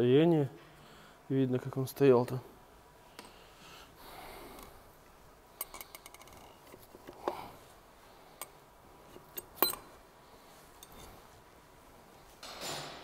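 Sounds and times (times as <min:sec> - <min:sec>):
metal clicks and clinks: 0:05.6 - 0:07.2, 0:09.2 - 0:09.9.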